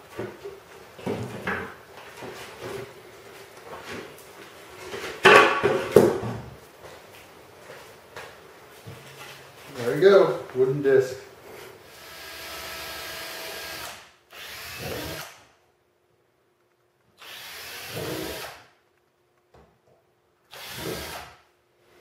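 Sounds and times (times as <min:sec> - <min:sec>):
cordless drill boring plastic: 0:11.9 - 0:15.4, 0:17.2 - 0:18.6, 0:20.5 - 0:21.4.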